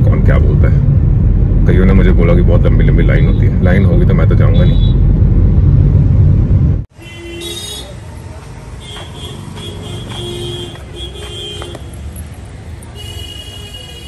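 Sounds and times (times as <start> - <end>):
low rumble of traffic: 0.0 - 14.0
vehicle horns honking: 4.5 - 5.1, 6.9 - 8.1, 8.8 - 12.1, 12.9 - 14.0.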